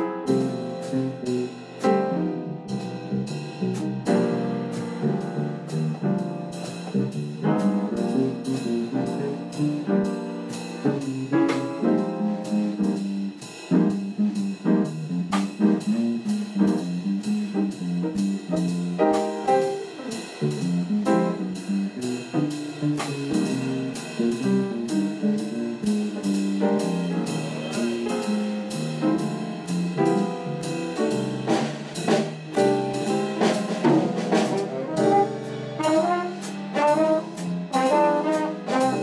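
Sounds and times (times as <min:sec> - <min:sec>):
drum kit steady beat: 0:00.0 - 0:39.0
horns playing melody: 0:33.4 - 0:39.0.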